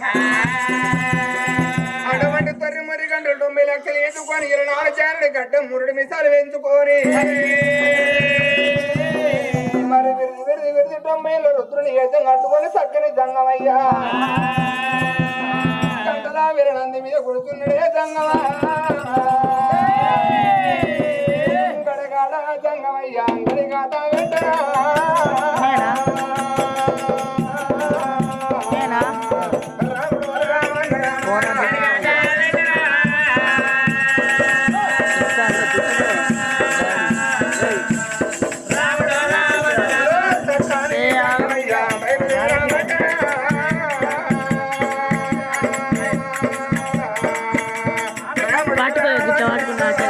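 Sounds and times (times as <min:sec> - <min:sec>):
men singing folk song: 0:00.0 - 0:02.6, 0:06.8 - 0:10.5, 0:13.6 - 0:50.0
fast drum beat: 0:00.0 - 0:02.8, 0:07.0 - 0:10.2, 0:13.9 - 0:16.4, 0:17.5 - 0:21.8, 0:23.3 - 0:50.0.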